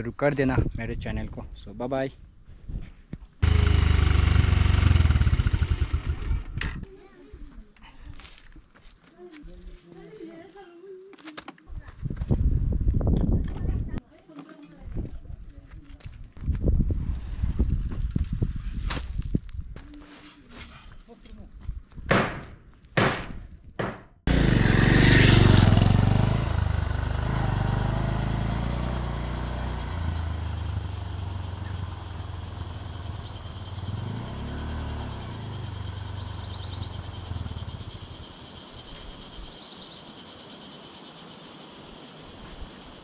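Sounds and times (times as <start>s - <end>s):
vehicle engine running: 3.4s - 6.6s, 24.3s - 38.7s.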